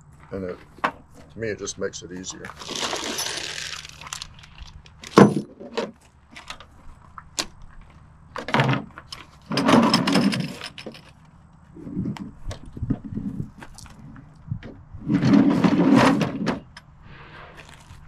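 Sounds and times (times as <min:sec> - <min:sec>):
rustling and scraping: 0:00.0 - 0:18.0
plastic tool case handled: 0:02.4 - 0:06.7.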